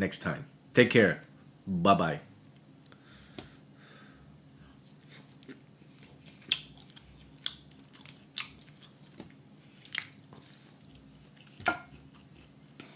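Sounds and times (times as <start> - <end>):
chewing: 4.7 - 12.9.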